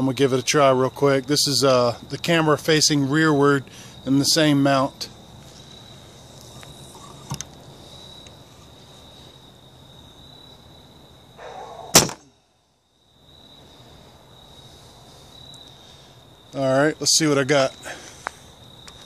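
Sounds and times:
bow string snap: 0:11.9 - 0:12.3.

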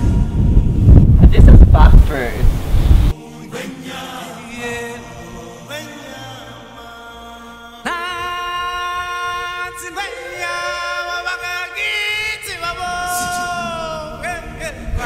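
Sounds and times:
soft choir voices: 0:03.1 - 0:15.0.

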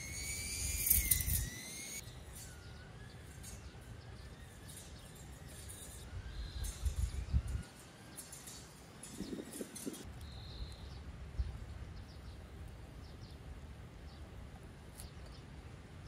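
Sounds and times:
high wavering whistle tone: 0:00.0 - 0:10.8
wind buffeting microphone: 0:04.4 - 0:12.6.

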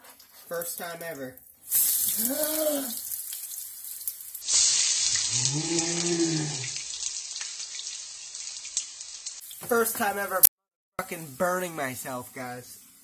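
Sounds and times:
oil sizzling in frying pan: 0:01.6 - 0:13.0
person yelping in pain: 0:02.2 - 0:03.0, 0:05.3 - 0:06.7
low drawn-out groan effect: 0:05.3 - 0:06.7.

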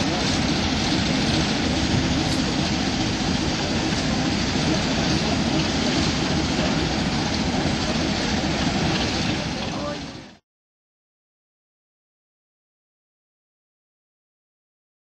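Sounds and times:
diesel engine rumbling: 0:00.0 - 0:10.4.

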